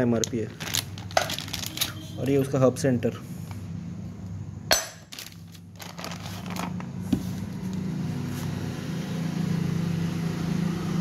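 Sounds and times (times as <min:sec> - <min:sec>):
low engine hum: 0:05.8 - 0:11.0.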